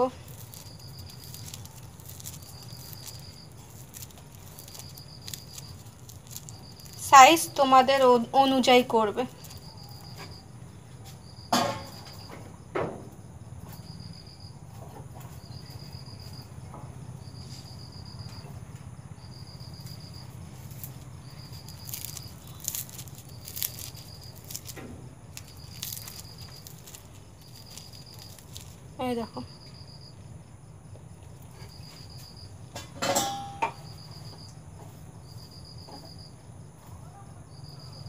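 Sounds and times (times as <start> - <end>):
puffed rice crackling in hands: 0.0 - 7.7, 9.3 - 10.3, 19.7 - 29.0
crickets chirping: 0.0 - 38.0.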